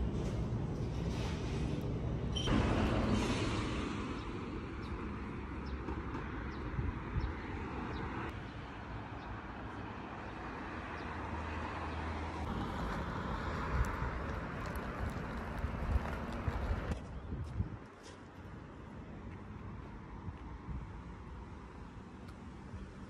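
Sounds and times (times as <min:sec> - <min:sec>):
faint street noise: 0:00.0 - 0:23.0
road traffic hum: 0:00.0 - 0:23.0.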